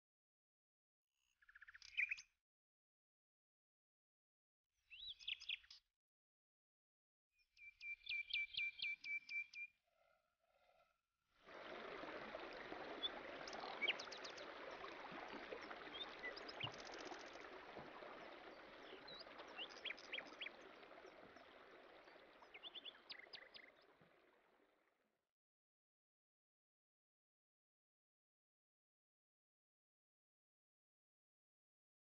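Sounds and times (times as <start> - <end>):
stream water running: 11.4 - 24.6
birds chirping: 12.5 - 23.9.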